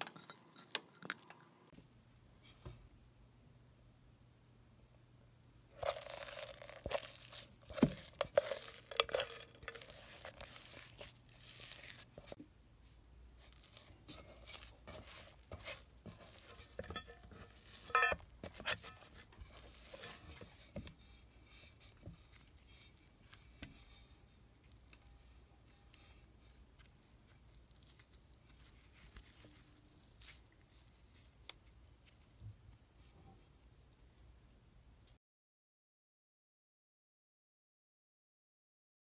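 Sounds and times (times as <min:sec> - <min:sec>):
dry dough crunching and crackling: 0:05.7 - 0:12.4, 0:13.4 - 0:33.9
fingers clicking on metal bowl: 0:05.8 - 0:11.2, 0:13.6 - 0:20.7.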